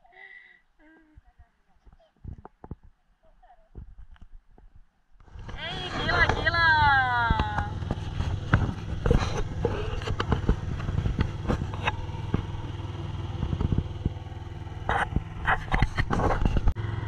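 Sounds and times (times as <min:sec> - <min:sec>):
knocks and clatters: 0:03.8 - 0:16.8
engine humming: 0:05.2 - 0:17.0.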